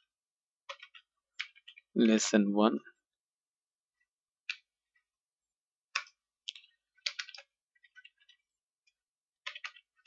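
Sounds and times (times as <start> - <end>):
keyboard keys clicking: 0.6 - 1.8, 5.9 - 8.4, 9.4 - 10.0.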